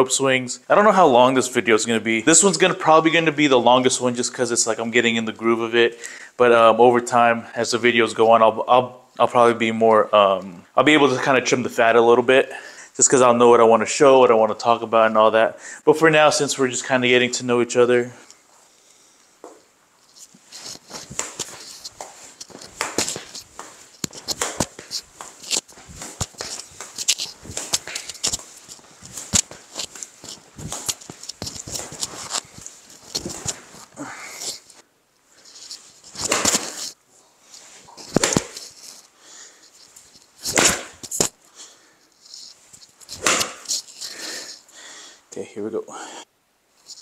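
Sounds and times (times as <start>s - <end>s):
shoes scuffing on turf mat: 19.5s - 34.8s, 35.7s - 37.0s, 43.2s - 43.7s
clothing rustles: 19.9s - 44.7s
rope trainer swishes: 20.1s - 34.8s, 35.6s - 37.0s, 37.8s - 39.1s, 40.0s - 41.3s, 43.0s - 44.0s.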